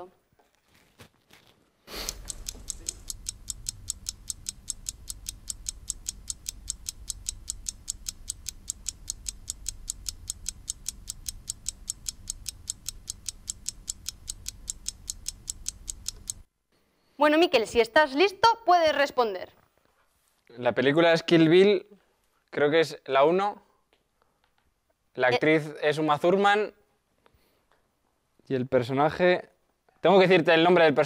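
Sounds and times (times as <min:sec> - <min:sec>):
fast clock ticking: 0:02.0 - 0:16.5
low hum: 0:02.1 - 0:16.4.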